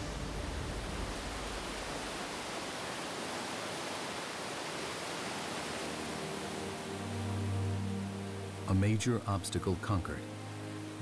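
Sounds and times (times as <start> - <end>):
river rushing over rapids: 0.0 - 9.6
faint music: 5.0 - 11.0.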